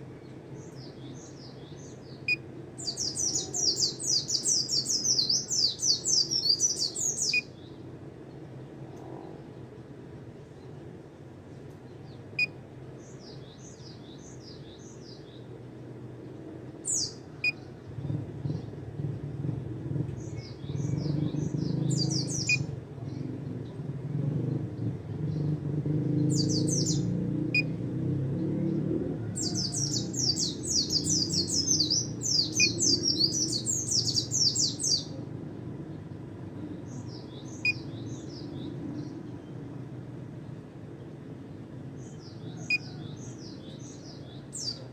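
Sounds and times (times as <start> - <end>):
bird chattering song: 0.2 - 7.8, 16.8 - 18.8, 20.2 - 23.2, 26.2 - 27.1, 29.4 - 35.2, 42.0 - 44.9.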